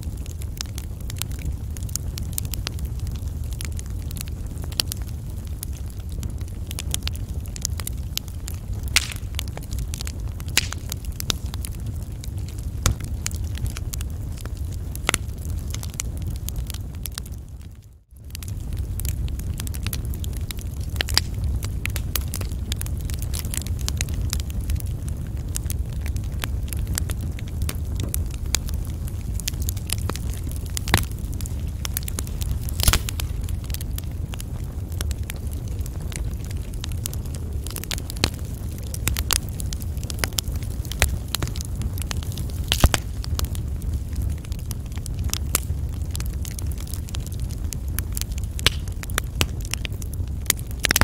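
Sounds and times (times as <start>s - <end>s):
wood fire crackling and popping: 0.0s - 51.0s
low rumble: 18.3s - 49.6s.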